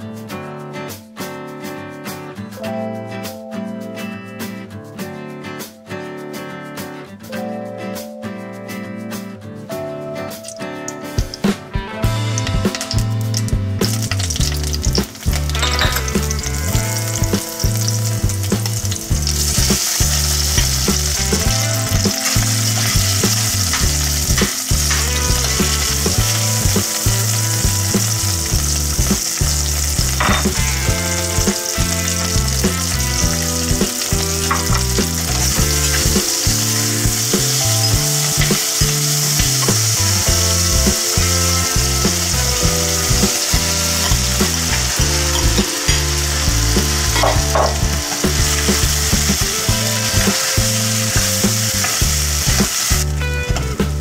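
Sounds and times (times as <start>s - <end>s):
oil sizzling in a pan: 12.0s - 53.7s.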